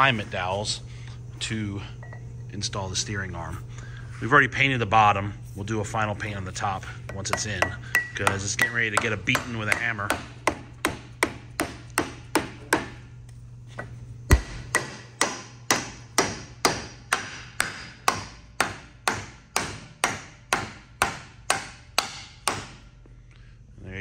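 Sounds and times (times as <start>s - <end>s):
hammer striking steel: 7.1s - 13.0s, 14.3s - 22.8s.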